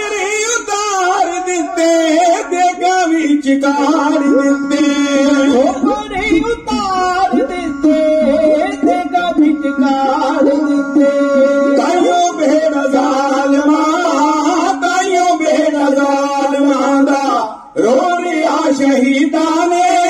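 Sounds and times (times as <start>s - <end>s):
men singing: 0.0s - 20.0s
steady held tone: 0.4s - 17.1s
bowed string instrument gliding: 3.7s - 14.2s.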